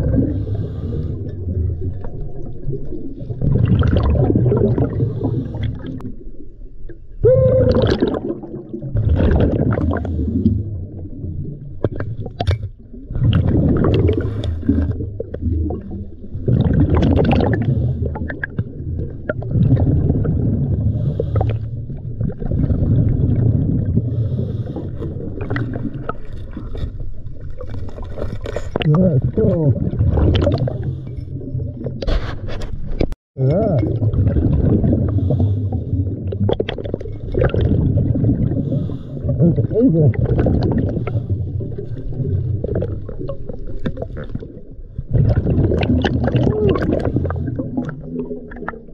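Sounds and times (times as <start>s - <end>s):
diver breathing through regulator: 0.2s - 1.5s, 4.9s - 6.0s, 20.8s - 21.9s, 24.0s - 26.0s, 35.0s - 36.0s, 38.5s - 39.4s.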